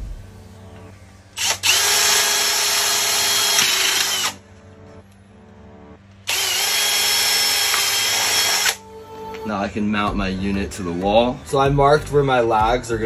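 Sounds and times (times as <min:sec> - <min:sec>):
cordless drill boring through metal: 0:01.4 - 0:04.4, 0:06.3 - 0:08.8.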